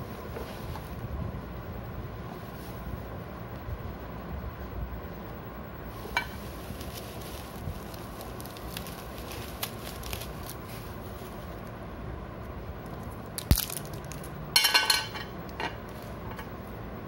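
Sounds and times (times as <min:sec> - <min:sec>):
bubble wrap crinkling: 0:05.9 - 0:11.8, 0:12.8 - 0:14.4.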